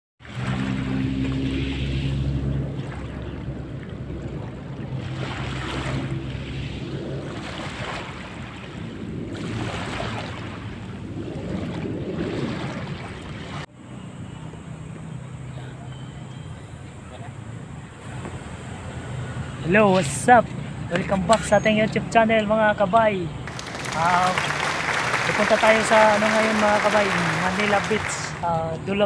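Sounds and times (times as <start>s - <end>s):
small waves lapping on sand: 0.2s - 13.7s, 23.5s - 28.5s.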